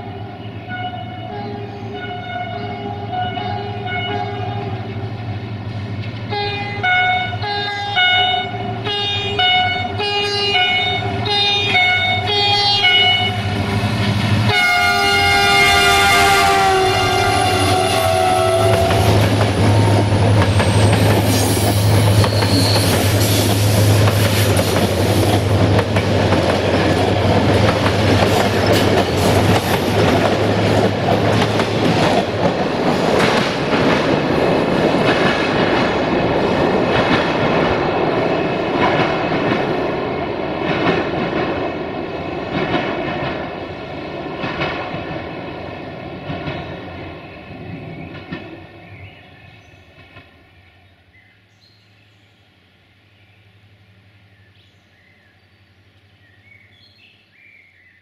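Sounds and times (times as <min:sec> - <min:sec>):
locomotive horn: 0:00.0 - 0:05.1, 0:06.2 - 0:13.7, 0:14.4 - 0:23.5
train wheels clicking over rail joints: 0:18.4 - 0:41.7, 0:44.2 - 0:45.4.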